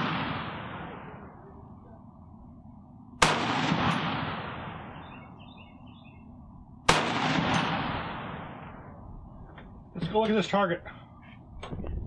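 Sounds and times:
rifle shots echoing: 0:00.0 - 0:01.5, 0:03.2 - 0:05.4, 0:06.8 - 0:09.0.

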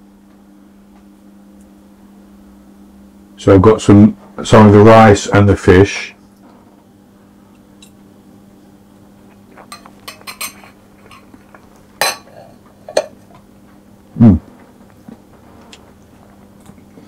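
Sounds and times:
steady room hum: 0:00.0 - 0:17.0
cutlery clinking against a pan: 0:09.6 - 0:11.3, 0:12.0 - 0:13.2
person humming: 0:14.1 - 0:14.6.

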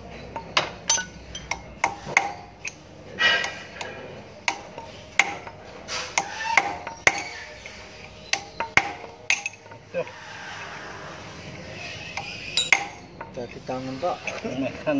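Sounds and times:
hammer striking metal punch: 0:00.4 - 0:03.6, 0:04.5 - 0:07.5, 0:08.3 - 0:09.7, 0:12.2 - 0:13.4.

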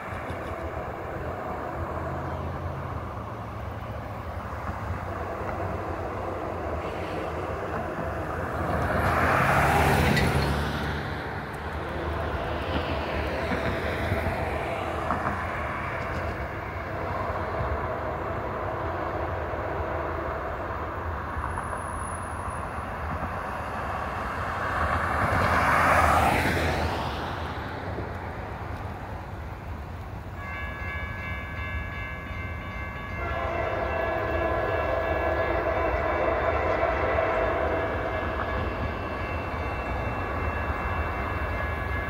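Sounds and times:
vehicles driving past: 0:00.0 - 0:30.4.

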